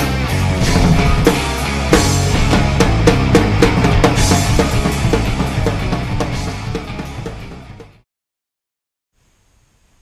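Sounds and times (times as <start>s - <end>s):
rock music with drum beat: 0.0s - 8.0s.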